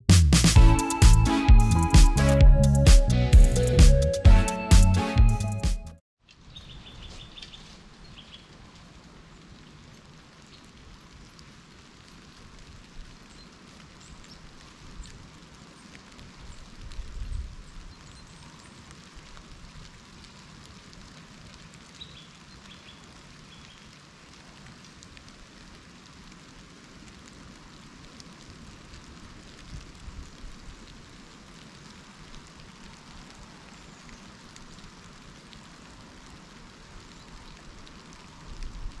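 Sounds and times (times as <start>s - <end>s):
faint high bird chirps: 6.5s - 8.5s.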